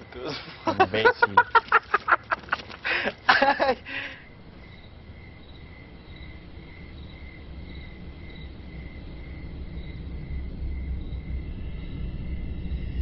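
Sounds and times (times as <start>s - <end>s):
cricket chirping: 0.0s - 13.0s
low rumble: 4.4s - 13.0s.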